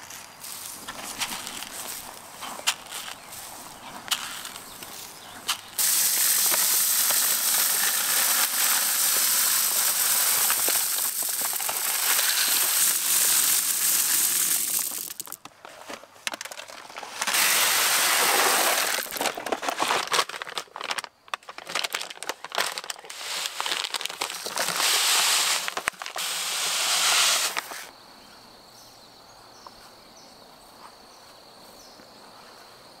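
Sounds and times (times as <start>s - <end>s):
seeds pouring into plastic bucket: 5.8s - 15.4s, 16.5s - 27.9s.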